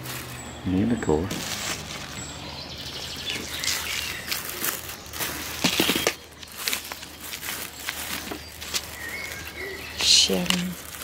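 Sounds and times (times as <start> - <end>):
packaging crinkling: 1.3 - 2.2, 3.3 - 11.0.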